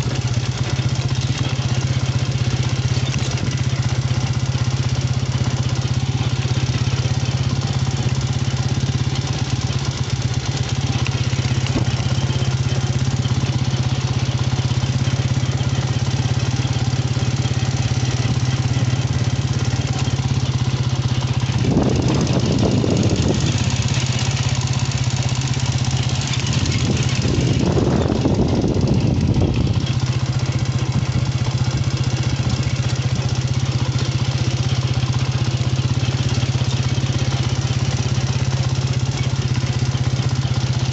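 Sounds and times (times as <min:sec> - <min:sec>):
small engine humming: 0:00.0 - 0:40.9.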